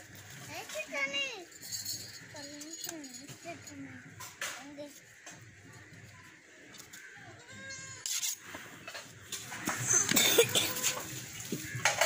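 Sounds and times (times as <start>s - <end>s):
goat bleating: 7.3s - 8.1s, 10.4s - 11.1s
knocks and clatter of butchering: 8.8s - 12.0s.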